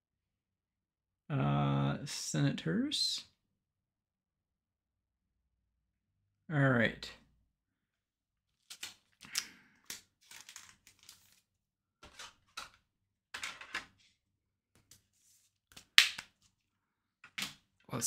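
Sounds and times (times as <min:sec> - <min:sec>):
trading cards rustling: 0:08.5 - 0:12.8.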